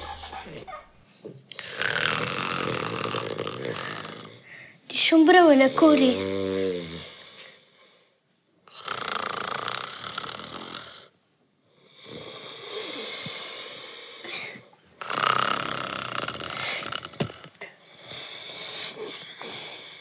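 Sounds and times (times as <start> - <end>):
man snoring: 1.6 - 4.5, 5.7 - 7.7, 8.7 - 11.2, 11.8 - 14.3, 15.0 - 20.0.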